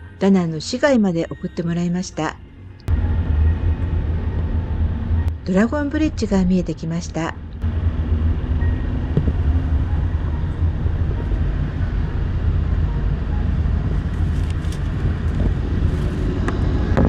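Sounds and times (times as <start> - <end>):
car interior road rumble: 2.9 - 17.0.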